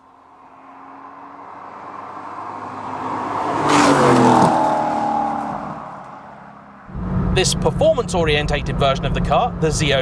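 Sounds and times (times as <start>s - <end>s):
car driving past: 0.1s - 7.7s.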